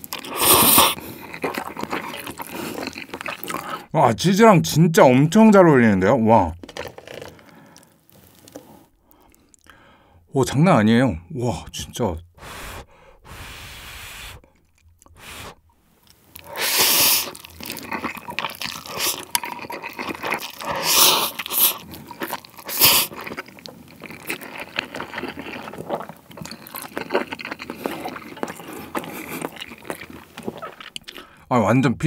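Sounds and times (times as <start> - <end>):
chewing: 0.0 - 3.9, 6.6 - 9.8, 14.4 - 15.2, 16.0 - 31.4
person slurping noodles: 0.0 - 3.9, 12.4 - 15.6, 16.4 - 31.3.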